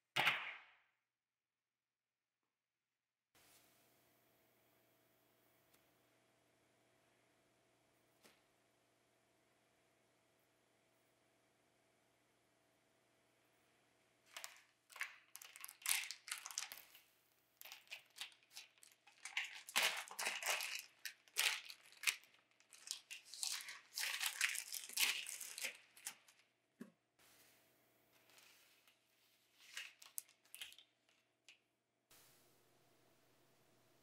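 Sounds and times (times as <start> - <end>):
parchment paper rustling: 14.3 - 26.5, 28.2 - 31.6.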